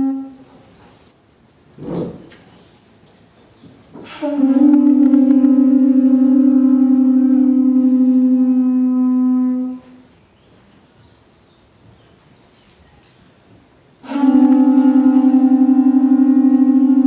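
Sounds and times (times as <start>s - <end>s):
conch shell trumpets blowing: 0.0s - 0.8s, 4.0s - 10.1s, 14.0s - 17.0s.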